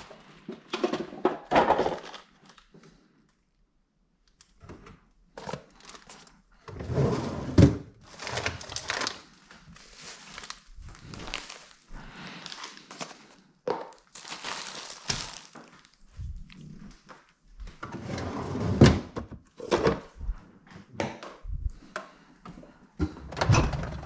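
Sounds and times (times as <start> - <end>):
plastic packaging crinkling: 5.4 - 6.4, 8.0 - 16.5.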